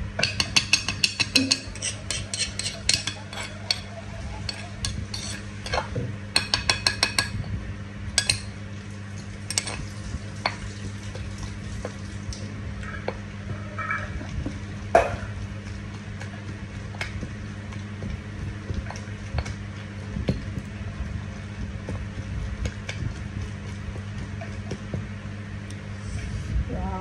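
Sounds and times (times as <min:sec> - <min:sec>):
steady low hum: 0:00.0 - 0:27.0
pestle pounding in stone mortar: 0:00.2 - 0:03.9, 0:04.6 - 0:07.4, 0:21.5 - 0:25.1.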